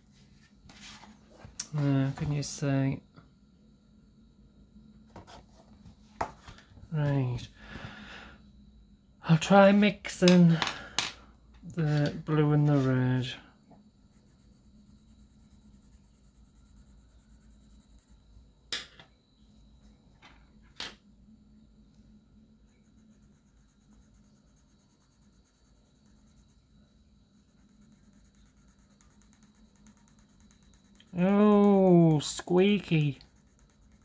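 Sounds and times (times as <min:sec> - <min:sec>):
pencil scratching on paper: 0:14.1 - 0:18.2, 0:22.7 - 0:26.6, 0:27.4 - 0:34.0.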